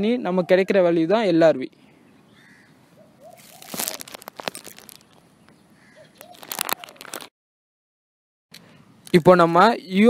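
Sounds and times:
crackling crinkling clicks: 3.5s - 5.2s, 6.2s - 7.3s.

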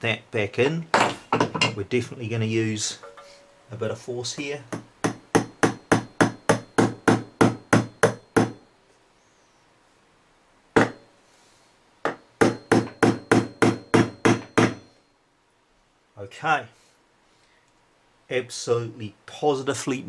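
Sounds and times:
small hammer tapping on metal: 4.7s - 8.7s, 12.0s - 14.9s.

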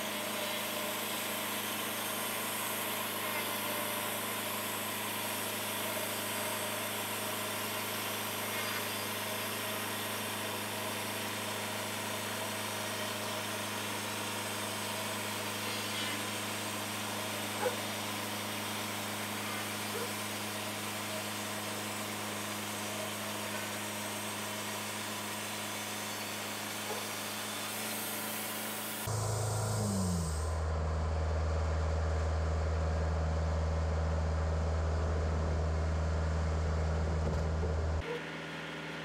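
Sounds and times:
sawmill engine running: 0.0s - 39.0s
deep steady hum: 29.1s - 38.1s.

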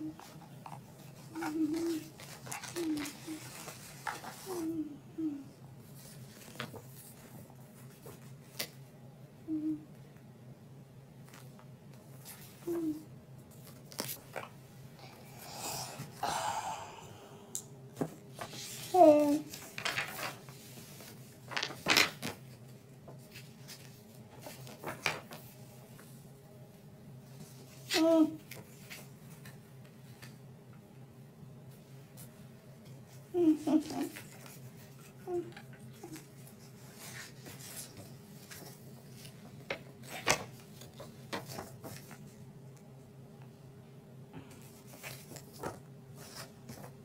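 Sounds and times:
faint steady hum: 0.0s - 47.0s
paper pages rustling: 0.1s - 4.8s, 5.8s - 8.8s, 11.2s - 14.6s, 18.0s - 26.2s, 33.6s - 42.5s, 44.6s - 47.0s.

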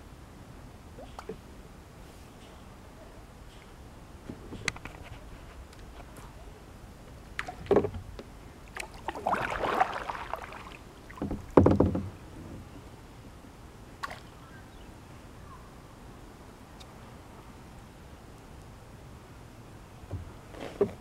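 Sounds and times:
bumps against plastic kayak hull: 11.1s - 12.6s.

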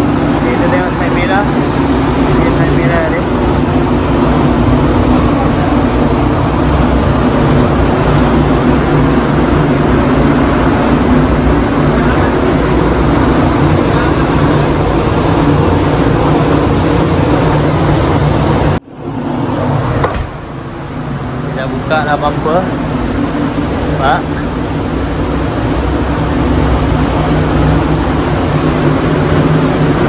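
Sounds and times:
ventilation fans rushing air: 0.0s - 30.0s.

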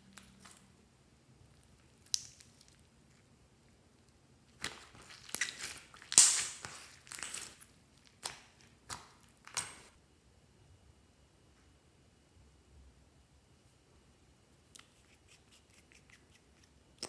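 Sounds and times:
slime squeezed by hand crackling: 4.6s - 9.9s.

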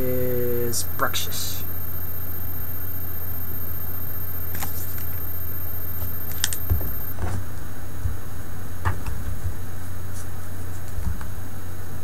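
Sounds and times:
steady low hum: 0.0s - 12.0s
trading cards clicking and rustling: 6.0s - 7.1s.

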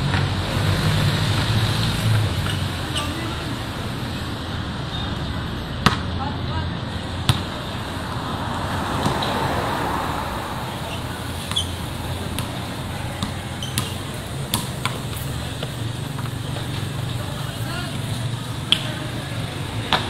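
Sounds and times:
background traffic hum: 0.0s - 20.0s
basketball bouncing on concrete: 2.2s - 2.9s, 5.8s - 6.1s, 7.2s - 7.7s, 8.9s - 9.4s, 11.0s - 19.1s, 19.7s - 20.0s.

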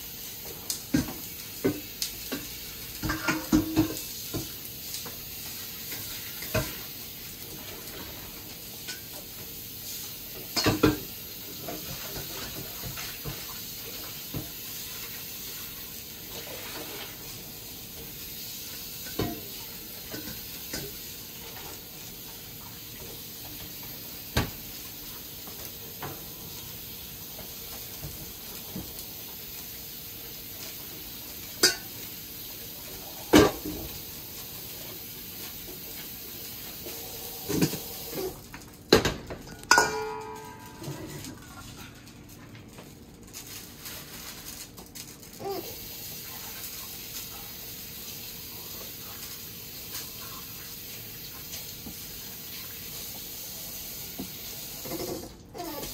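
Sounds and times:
steady hiss: 0.0s - 38.8s, 45.6s - 55.3s
kitchenware clinking and knocking: 39.0s - 41.5s.

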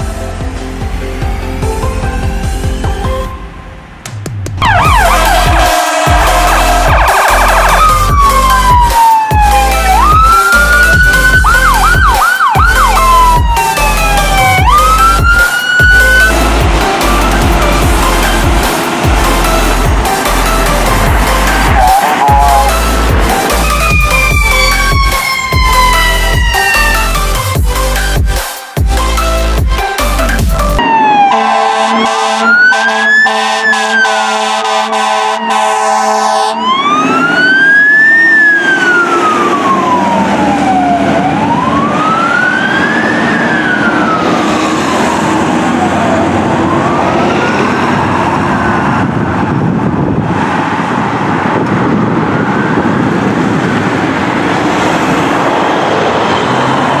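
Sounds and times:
road traffic passing: 0.0s - 57.0s
air horn blaring: 4.6s - 8.5s, 9.4s - 27.4s, 30.8s - 37.0s
fire engine siren wailing: 4.6s - 28.1s, 29.0s - 57.0s.

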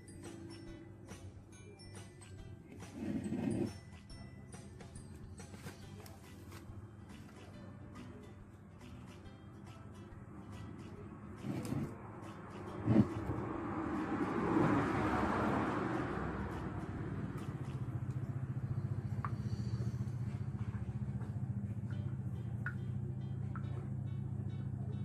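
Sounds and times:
engine humming: 2.4s - 25.0s
motor vehicle passing: 2.7s - 4.1s, 8.9s - 25.0s.

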